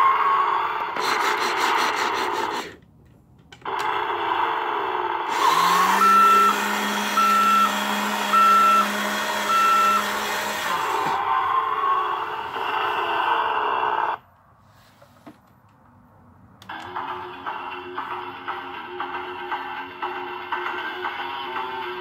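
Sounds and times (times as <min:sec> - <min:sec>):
toy engine noise: 0:00.0 - 0:02.8, 0:03.6 - 0:14.2.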